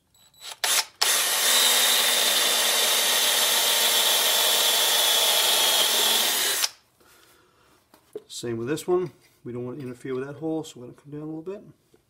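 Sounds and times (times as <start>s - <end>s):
cordless drill boring through steel: 0.2s - 6.8s.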